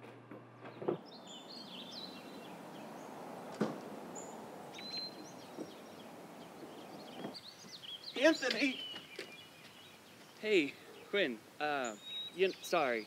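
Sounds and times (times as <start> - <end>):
small birds chirping: 0.6 - 13.0
thump: 3.6 - 3.8.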